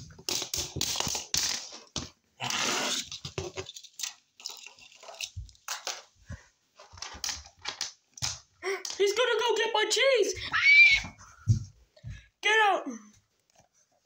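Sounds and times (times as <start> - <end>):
plastic toys handling noises: 0.0 - 9.6.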